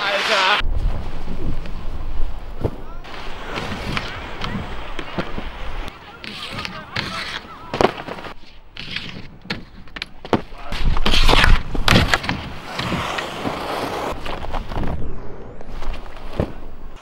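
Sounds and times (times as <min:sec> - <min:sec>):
skis sliding on a rail: 0:03.1 - 0:09.8, 0:10.8 - 0:14.7
skis scraping over snow: 0:12.2 - 0:14.8.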